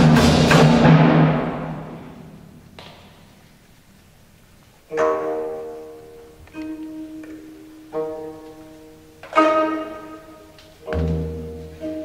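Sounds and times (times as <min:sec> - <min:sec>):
slow pitched instrumental notes: 0:04.9 - 0:12.0.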